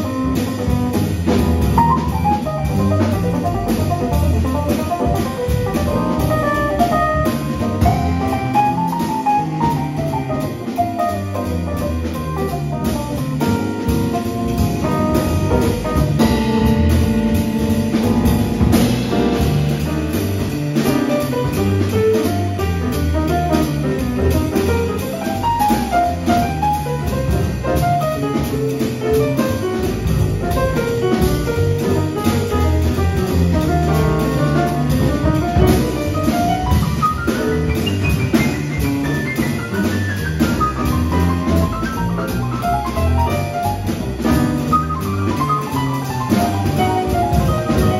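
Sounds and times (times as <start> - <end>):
grand piano: 0.0 - 47.9
jazz combo playing: 0.0 - 47.9.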